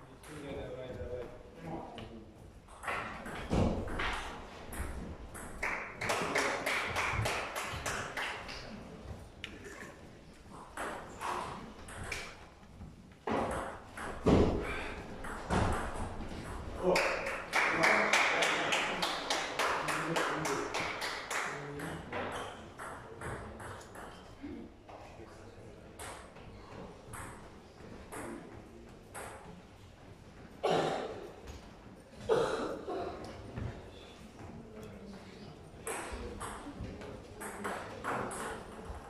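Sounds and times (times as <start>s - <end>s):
people talking: 34.6s - 39.0s.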